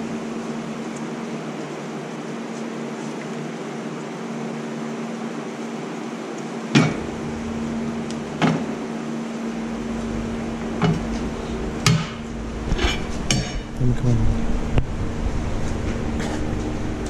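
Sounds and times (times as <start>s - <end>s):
tire changer machine hum: 6.8s - 17.0s
low rumble: 6.9s - 17.0s.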